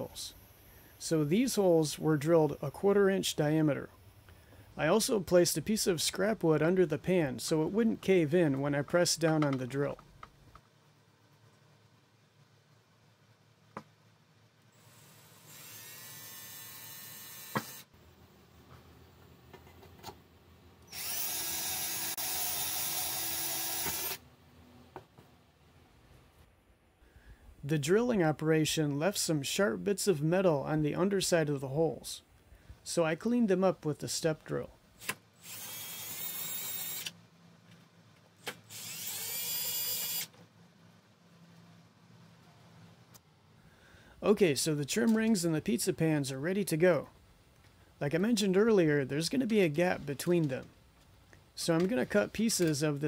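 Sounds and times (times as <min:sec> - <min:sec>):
drill boring through sheet metal: 0:15.2 - 0:17.8, 0:20.9 - 0:24.2, 0:35.4 - 0:37.1, 0:38.7 - 0:40.3.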